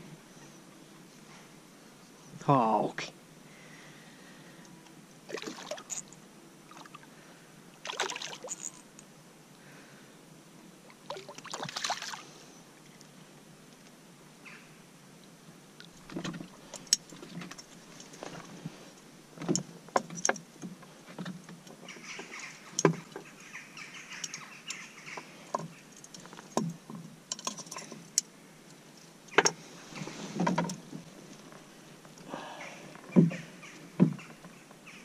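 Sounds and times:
fish thumping on wooden boards: 33.1 - 33.4.

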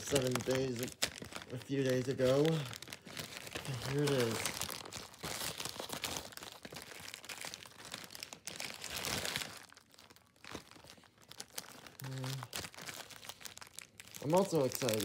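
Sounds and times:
plastic bag crinkling: 0.0 - 15.0.

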